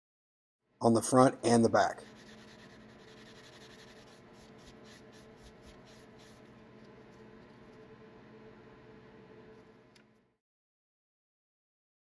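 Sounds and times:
metal cap rubbing on abrasive pad: 0:02.0 - 0:07.8.

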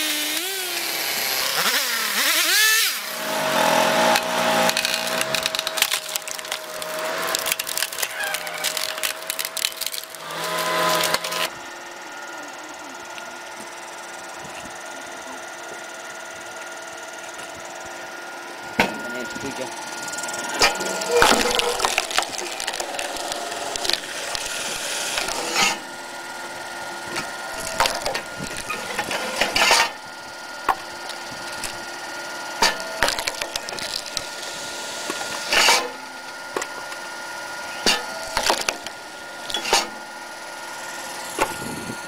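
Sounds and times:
log splitter whine: 0:00.0 - 0:42.0
logs cracking and splintering: 0:03.6 - 0:11.5, 0:20.4 - 0:25.9, 0:27.1 - 0:30.0, 0:30.6 - 0:31.9, 0:32.6 - 0:37.1, 0:37.8 - 0:40.0.

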